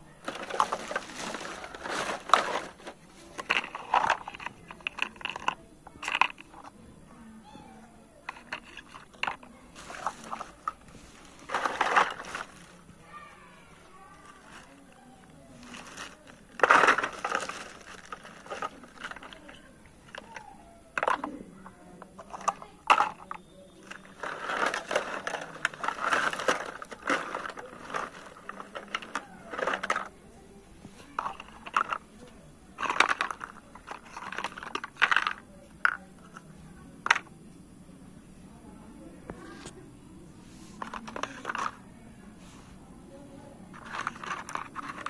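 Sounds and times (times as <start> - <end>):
plastic bag crinkling: 0.2 - 6.4, 8.3 - 12.8, 14.0 - 20.4, 22.2 - 30.1
plastic toy dishes clattering: 0.2 - 6.8, 8.2 - 12.8, 14.1 - 30.2, 30.9 - 37.4, 40.8 - 41.8, 43.7 - 45.0.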